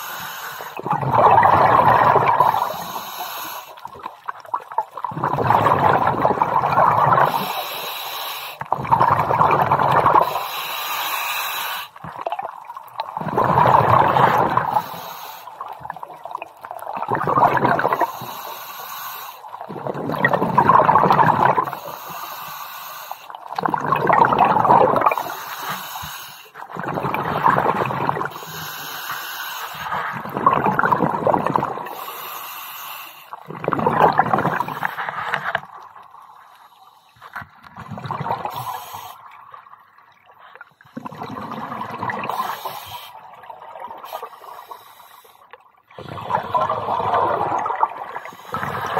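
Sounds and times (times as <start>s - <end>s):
regulator hiss on inhale: 0.0s - 0.8s, 2.5s - 3.9s, 7.2s - 8.7s, 10.2s - 12.0s, 14.7s - 15.6s, 18.0s - 19.6s, 21.6s - 23.4s, 25.1s - 26.6s, 28.3s - 30.0s, 31.8s - 33.4s, 36.2s - 37.4s, 38.5s - 39.3s, 42.3s - 43.3s, 44.0s - 45.6s, 48.2s - 48.9s
exhaled bubbles gurgling: 0.0s - 22.2s, 23.3s - 36.3s, 37.4s - 48.9s.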